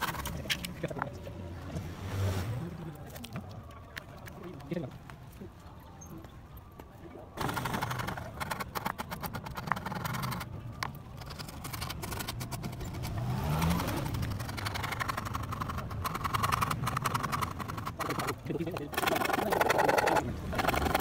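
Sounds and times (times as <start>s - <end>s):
motor vehicle passing: 0.0s - 3.7s, 7.4s - 21.0s
hand rasp scraping wood: 7.4s - 10.5s, 11.2s - 21.0s.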